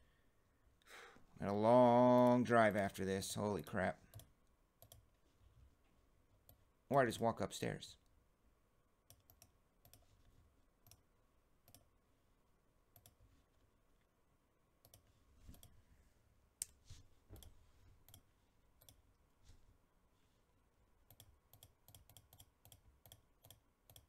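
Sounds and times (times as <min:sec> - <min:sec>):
computer mouse clicking: 0:04.1 - 0:05.0, 0:09.1 - 0:10.1, 0:10.8 - 0:11.0, 0:11.6 - 0:11.9, 0:12.9 - 0:13.2, 0:14.8 - 0:15.8, 0:18.8 - 0:19.0, 0:21.1 - 0:24.0.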